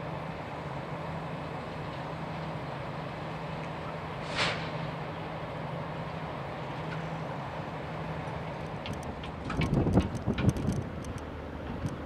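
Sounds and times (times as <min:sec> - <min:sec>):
short hiss: 0:04.2 - 0:04.9.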